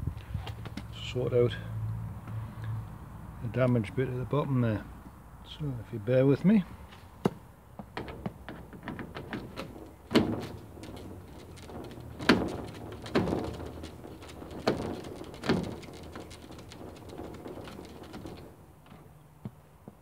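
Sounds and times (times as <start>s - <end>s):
loud knocks on door frame: 7.9s - 18.5s.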